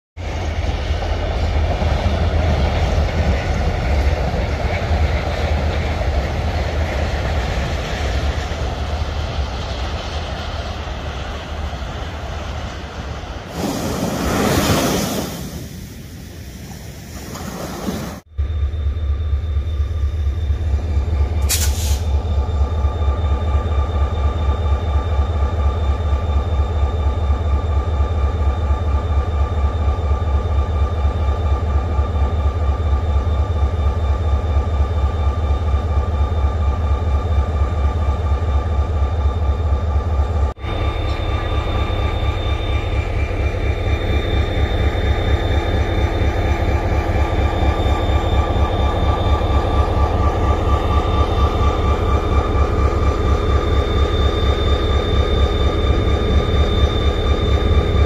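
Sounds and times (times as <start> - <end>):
diesel locomotive engine throbbing: 0.2 - 13.7, 18.2 - 58.0
surf breaking on beach: 13.5 - 18.2
steady high whine: 18.2 - 58.0.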